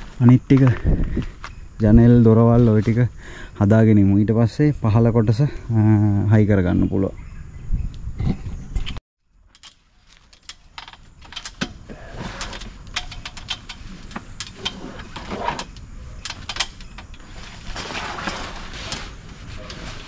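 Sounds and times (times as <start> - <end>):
metal rods clicking and rattling: 9.5 - 17.3.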